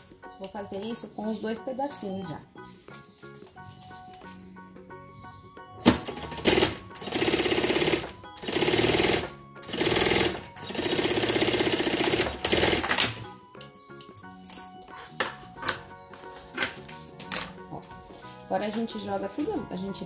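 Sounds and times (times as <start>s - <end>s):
industrial sewing machine running: 6.4s - 13.0s.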